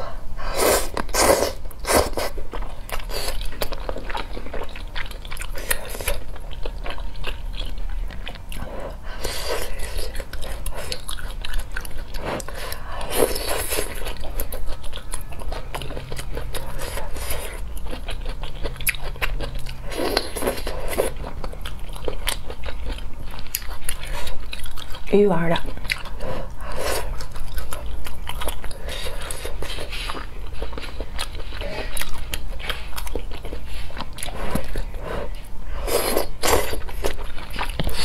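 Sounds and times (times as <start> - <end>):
wet chewing: 0.7 - 38.0.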